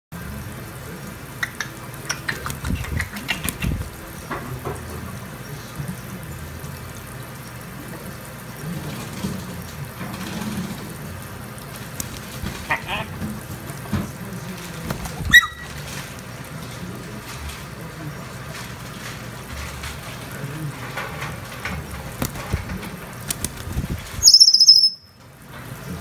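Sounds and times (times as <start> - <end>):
tap water running into sink: 1.1 - 17.9, 18.6 - 24.3
wings splashing in water: 1.4 - 4.6, 11.6 - 17.8, 21.8 - 24.8.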